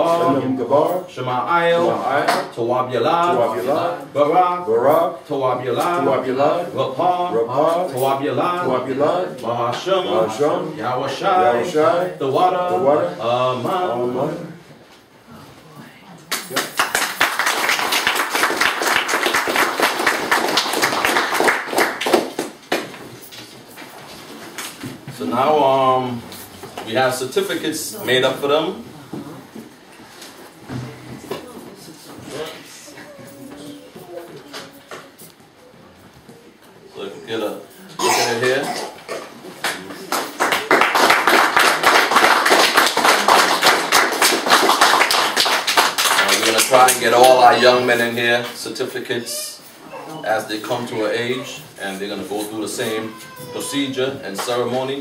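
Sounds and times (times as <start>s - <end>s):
group applauding: 16.2s - 23.3s, 39.5s - 47.7s
people clapping: 16.2s - 23.4s, 39.6s - 47.7s.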